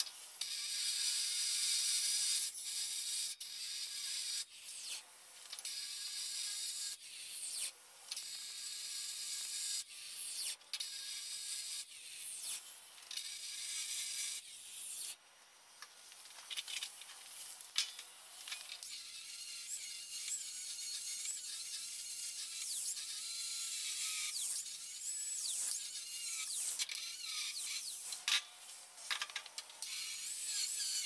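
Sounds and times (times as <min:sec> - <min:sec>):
angle grinder cutting steel: 0:17.4 - 0:28.5, 0:29.1 - 0:31.0.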